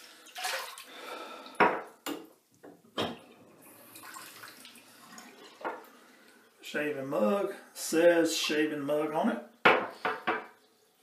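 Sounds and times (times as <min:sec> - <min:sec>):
water splashing and dripping: 0:00.0 - 0:06.6.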